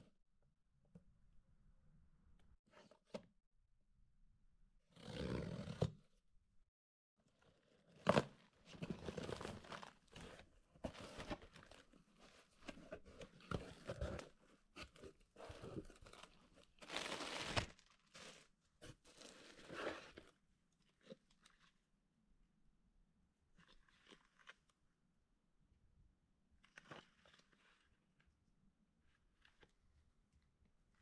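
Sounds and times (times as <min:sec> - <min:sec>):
plastic packing crinkling: 0:15.7 - 0:18.4.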